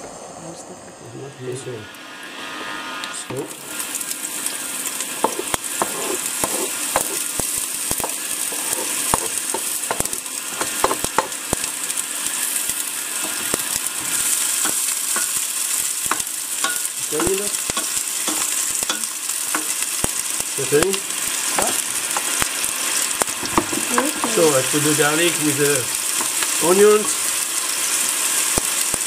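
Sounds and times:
onions sizzling in hot oil: 1.6s - 29.0s
spoon scraping metal pot: 5.2s - 7.3s.

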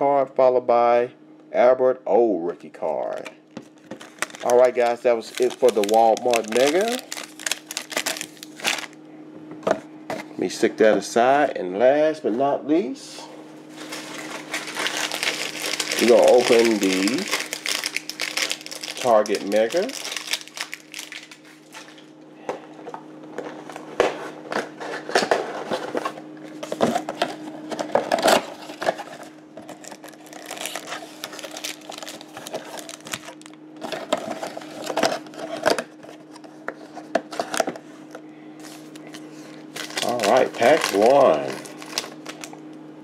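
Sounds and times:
crackling cardboard and foil packs: 3.0s - 9.0s, 13.6s - 22.1s, 23.4s - 42.8s.

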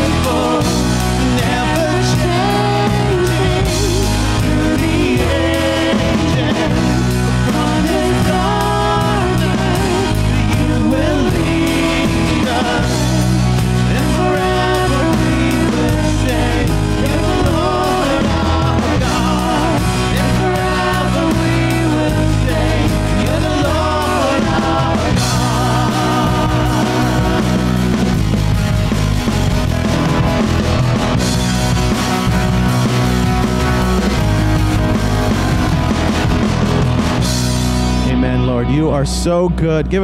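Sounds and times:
people singing: 0.0s - 28.4s
bass guitar: 0.0s - 40.0s
drum kit: 0.0s - 40.0s
electric guitars: 0.0s - 40.0s.

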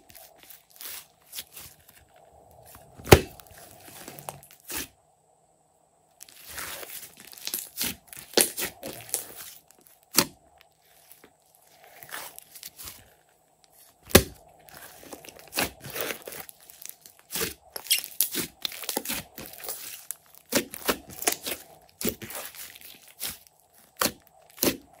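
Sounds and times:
slime squeezed with sticky pops: 6.3s - 10.4s, 14.0s - 25.0s.

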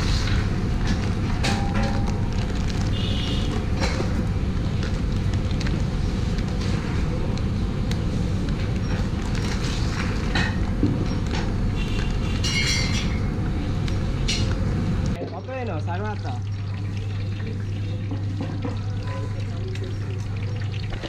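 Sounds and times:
plastic crinkles and clicks: 0.8s - 6.6s.

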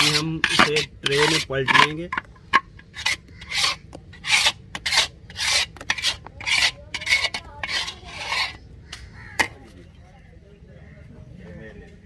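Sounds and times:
spoon scraping a wok: 0.0s - 8.7s.

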